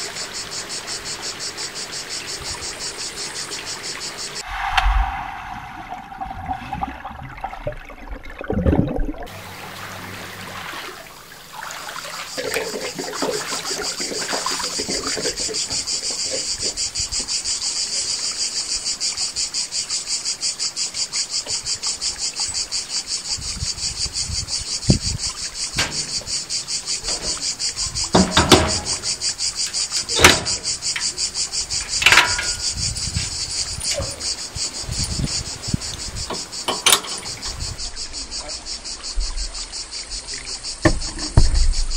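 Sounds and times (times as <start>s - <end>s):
cicadas buzzing: 0.0s - 7.4s, 9.3s - 41.9s
sharp knocks: 25.8s - 26.4s, 28.1s - 29.2s.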